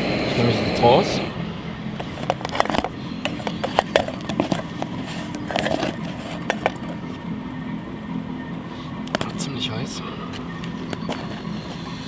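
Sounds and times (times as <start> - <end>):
gas stove burner hissing: 0.0 - 5.7, 10.4 - 12.0
spatula scraping metal pot: 2.0 - 7.1.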